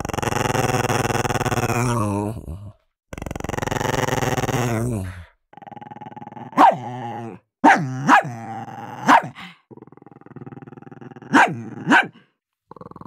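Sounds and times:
dog growling: 0.0 - 13.0
dog barking sharply: 6.6 - 6.8, 7.6 - 8.3, 9.0 - 9.4, 11.3 - 12.2.

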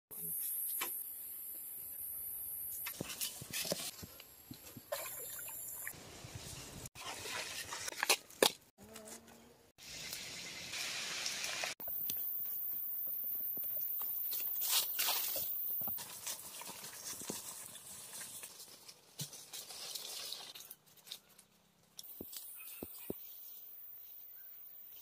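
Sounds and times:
trickling stream: 2.9 - 8.4
high insect hiss: 11.8 - 16.0.

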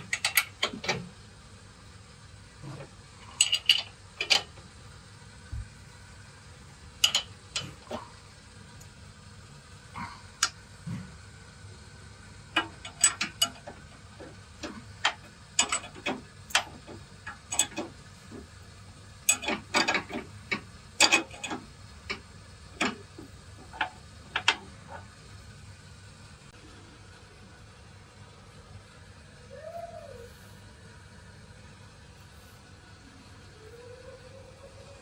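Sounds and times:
wrench clicking on a nut: 0.1 - 1.0, 3.3 - 4.5, 7.0 - 7.9, 12.6 - 18.0, 19.3 - 22.2.

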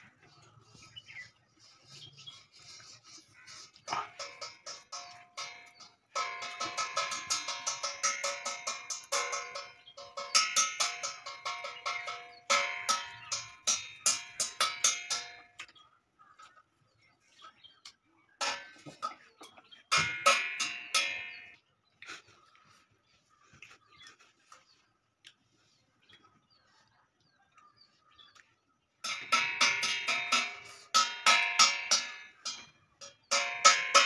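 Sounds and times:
metal bell clanging: 3.9 - 15.4, 29.0 - 34.0.

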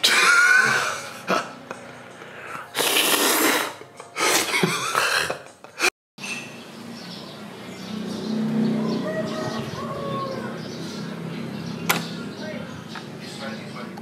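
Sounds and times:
man coughing and hacking: 0.0 - 1.8.

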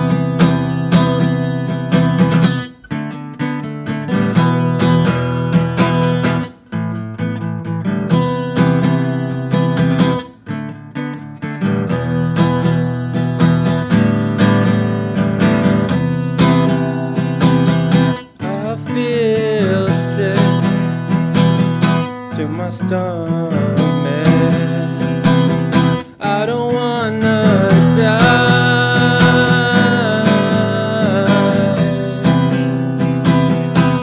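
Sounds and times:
acoustic guitar strumming: 0.0 - 34.0
man singing: 18.3 - 34.0.

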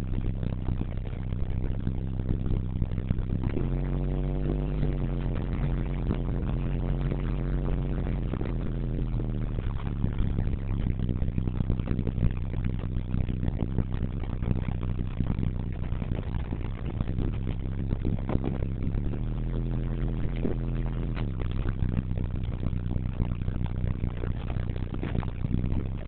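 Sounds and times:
diesel engine running: 0.0 - 26.0.

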